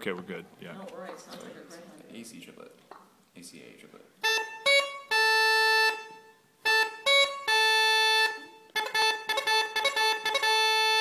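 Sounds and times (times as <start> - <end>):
bagpipe chanter melody: 4.2 - 11.0.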